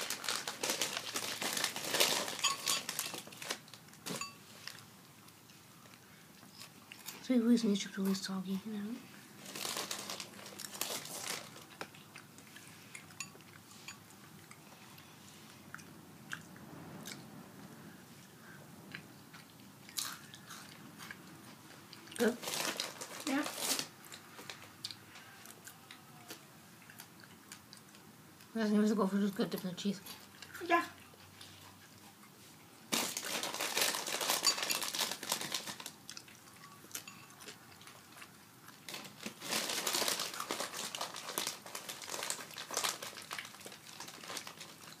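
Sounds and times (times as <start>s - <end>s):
chips crunching while chewed: 0.0s - 4.8s, 9.4s - 13.6s, 19.4s - 28.0s, 32.9s - 45.0s
tableware and packaging rustling: 0.0s - 15.6s, 19.3s - 26.4s, 28.6s - 45.0s.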